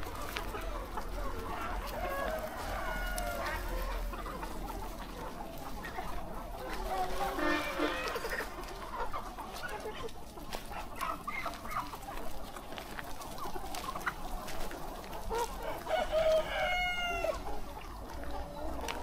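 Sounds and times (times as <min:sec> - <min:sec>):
chickens clucking: 0:00.0 - 0:19.0
rooster crowing: 0:01.5 - 0:04.1, 0:15.6 - 0:17.4.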